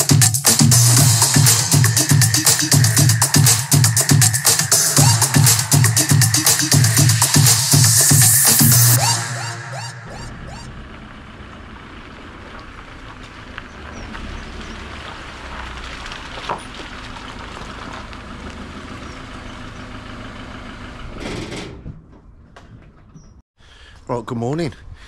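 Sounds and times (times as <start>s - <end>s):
diesel lorry engine reversing: 8.1s - 22.4s.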